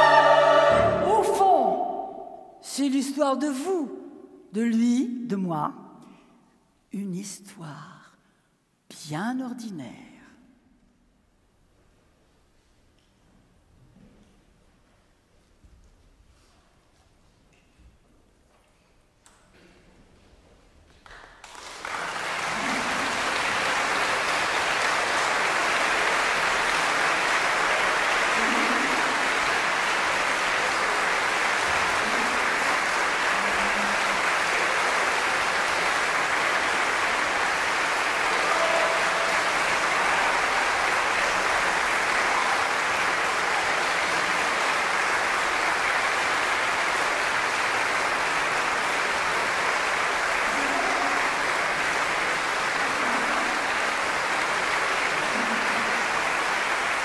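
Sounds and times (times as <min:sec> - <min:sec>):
audience applauding: 0:00.0 - 0:01.1, 0:21.0 - 0:57.0.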